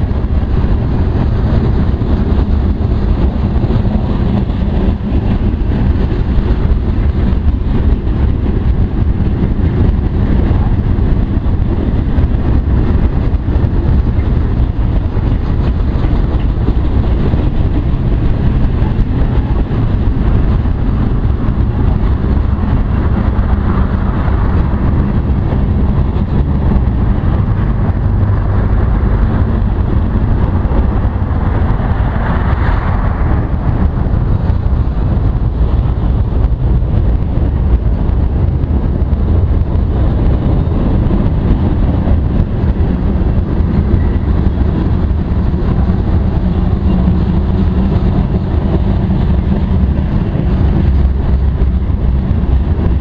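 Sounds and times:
train wheels rumbling on rail: 0.0 - 53.0.

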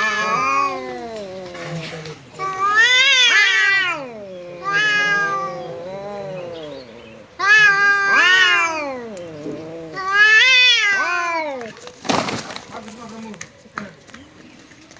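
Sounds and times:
cats yowling: 0.0 - 11.9.

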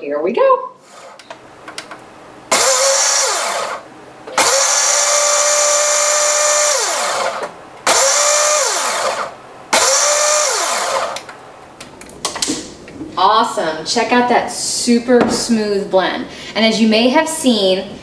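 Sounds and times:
blender motor whining: 2.5 - 11.3.

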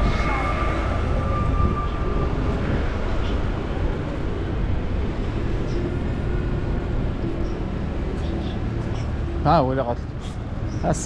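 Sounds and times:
wind buffeting microphone: 0.0 - 7.9
faint city street noise: 0.0 - 11.0.

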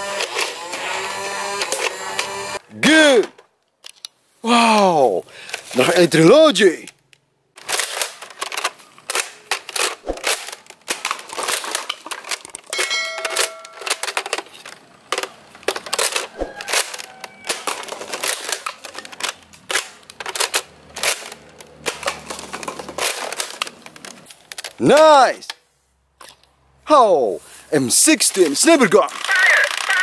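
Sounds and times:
toy blaster clacking and clicking: 0.0 - 2.6, 13.3 - 24.8, 28.4 - 30.0
plastic cups clattering down: 7.6 - 25.0.

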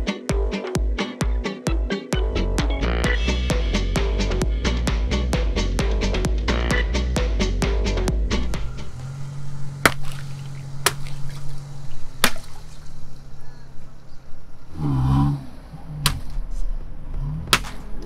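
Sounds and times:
low steady engine hum: 7.2 - 18.0
low rumble: 7.6 - 18.0
water balloons popping with splash: 9.8 - 11.6, 12.2 - 13.0.

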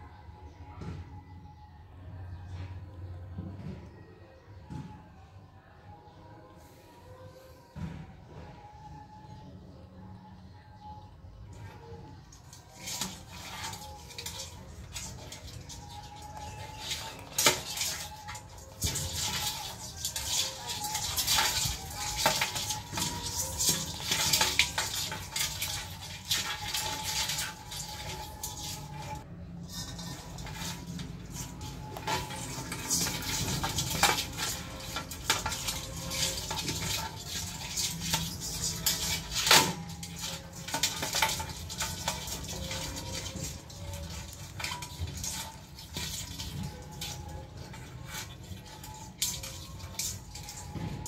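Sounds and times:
crab claws clicking on steel bowl: 12.4 - 50.8.

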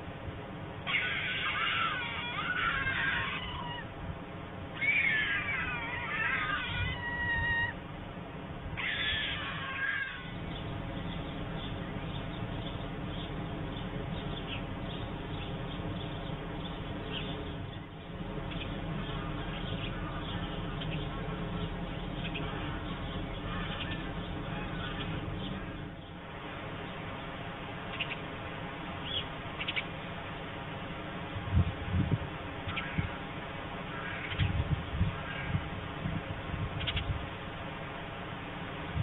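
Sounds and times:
steady outdoor hiss: 0.0 - 39.0
stork calls: 0.9 - 3.9, 4.8 - 7.8, 18.6 - 26.0.

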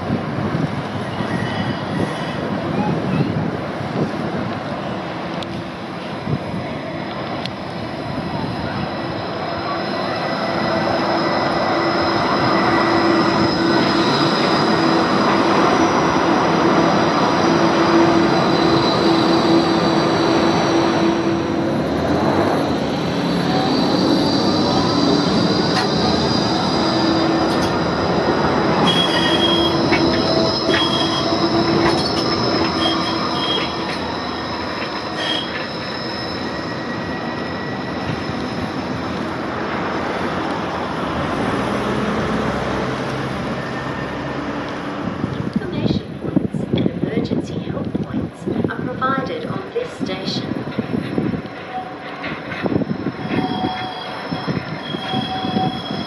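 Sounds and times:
tram passing on track: 0.0 - 56.0
high-pitched wheel squeal: 8.6 - 16.1, 17.4 - 21.7, 23.0 - 27.9, 28.7 - 40.4, 51.0 - 56.0.

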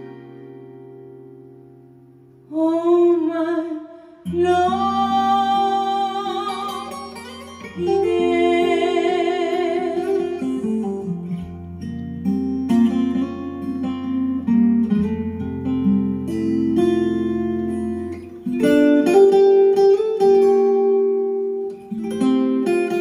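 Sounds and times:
acoustic guitar chords: 0.0 - 23.0
woman singing with vibrato: 2.4 - 11.6.

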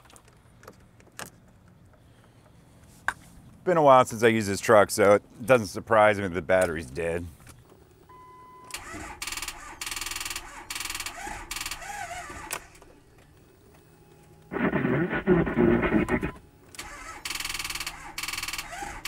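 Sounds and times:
diesel engine failing to start: 8.7 - 12.8, 14.5 - 19.0
starter motor chattering: 14.5 - 19.0.

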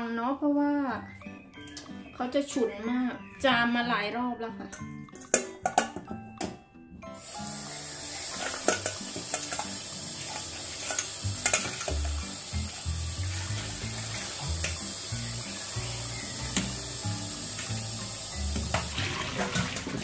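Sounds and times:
tap water running and splashing: 7.2 - 20.0.

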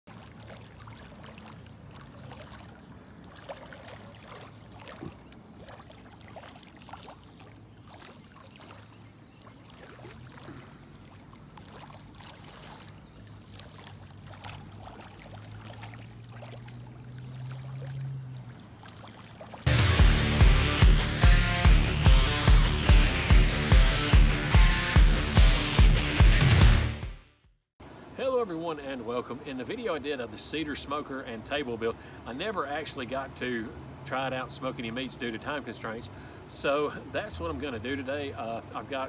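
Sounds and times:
water dripping and trickling: 0.1 - 19.7.

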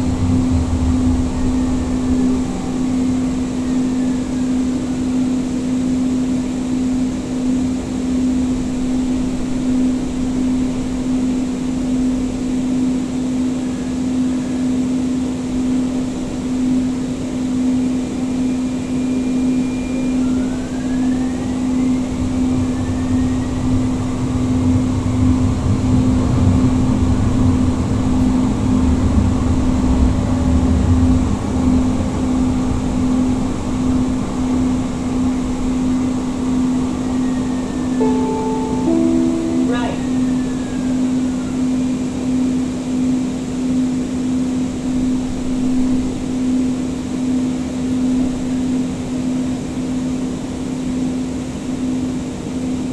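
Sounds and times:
wheels rumbling on rails: 0.0 - 5.6
steady train hum: 0.0 - 52.9.

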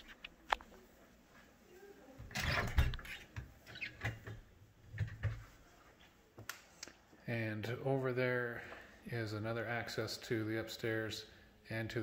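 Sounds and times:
door opening: 2.2 - 5.4.

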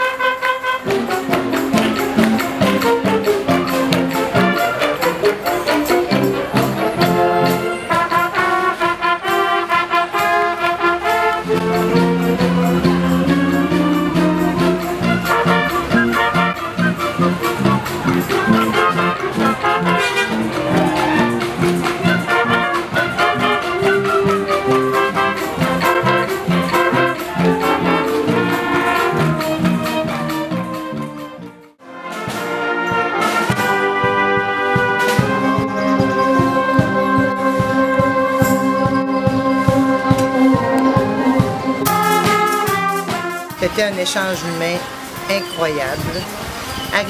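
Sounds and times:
concert band playing: 0.0 - 47.0
saxophones and horns melody: 0.0 - 47.0
steady drum beat: 11.4 - 31.4, 32.0 - 45.6.

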